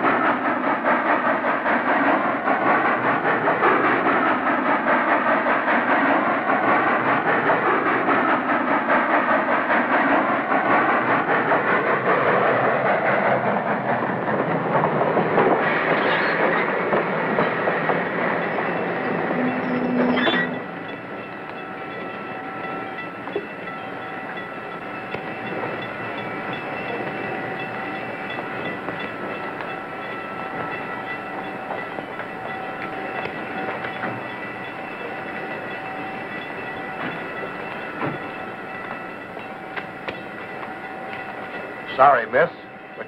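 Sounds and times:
steam train clattering on rails: 0.0 - 43.0.

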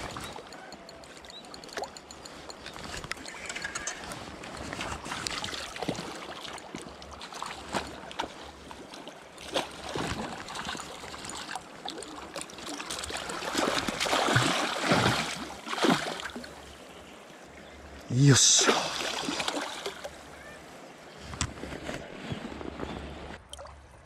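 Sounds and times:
river water rushing: 12.5 - 16.8, 18.1 - 20.8.

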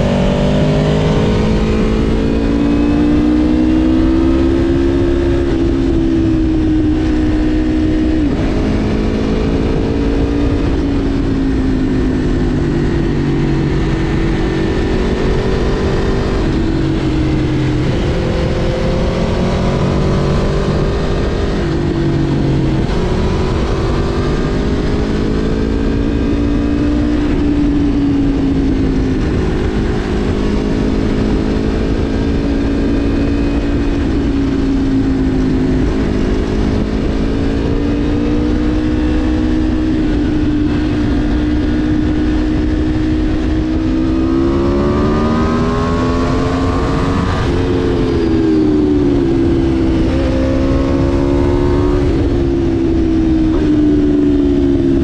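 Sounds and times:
low rush of wind: 0.0 - 55.0
motorcycle engine running: 0.0 - 55.0.

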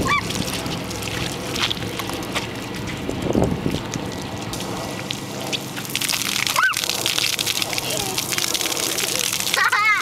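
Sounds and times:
fountain jets spraying water: 0.0 - 10.0
wind buffeting microphone: 2.6 - 4.6.

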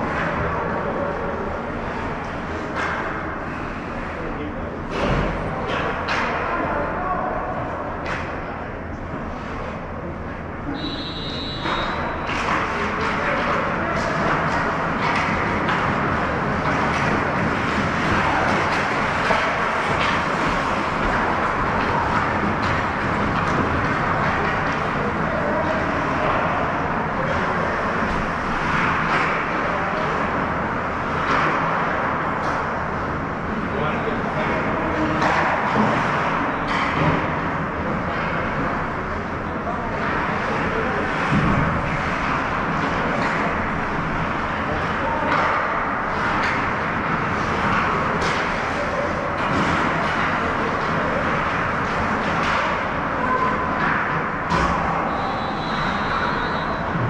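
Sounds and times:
ice rink crowd din: 0.0 - 57.0
sharp clacks of sticks and puck: 0.0 - 57.0
skate scrapes and knocks: 11.5 - 57.0.

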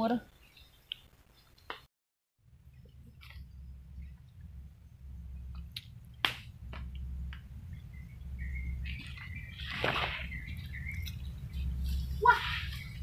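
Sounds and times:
sharp crack: 5.6 - 7.4
footsteps through undergrowth: 8.8 - 13.0.

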